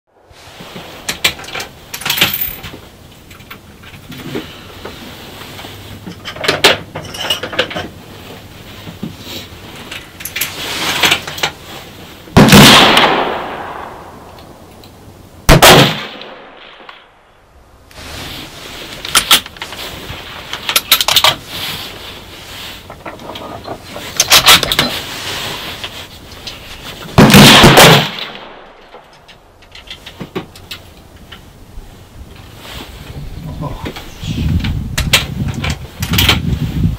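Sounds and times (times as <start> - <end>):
rifle shots with echo: 12.4 - 14.3, 15.5 - 17.1, 27.2 - 28.6.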